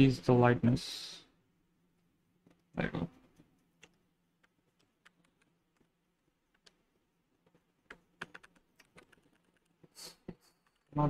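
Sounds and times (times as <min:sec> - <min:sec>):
computer keyboard taps: 0:07.4 - 0:09.8.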